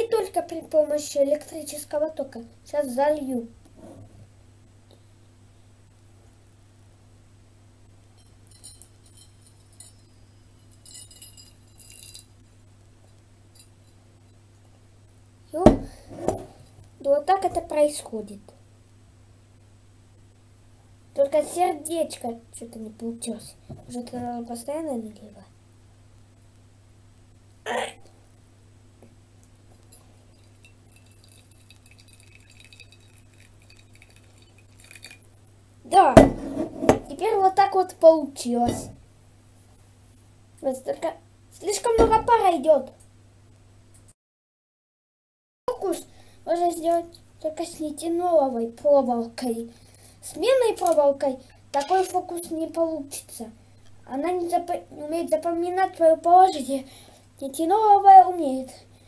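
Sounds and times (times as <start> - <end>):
water trickling into plate: 30.3 - 35.3
ceramic clinks: 30.4 - 35.2.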